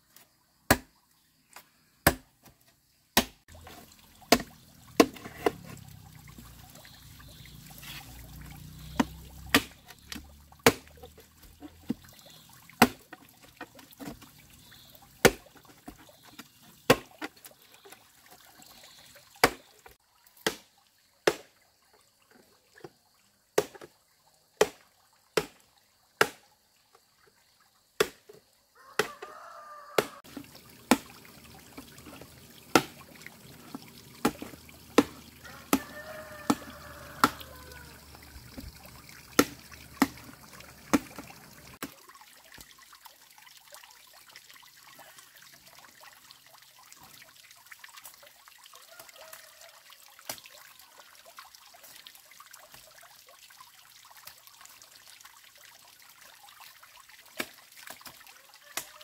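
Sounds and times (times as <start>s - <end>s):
machete striking bamboo: 0.7s - 0.9s, 2.0s - 2.3s, 3.2s - 3.4s, 8.9s - 11.0s, 28.0s - 28.2s.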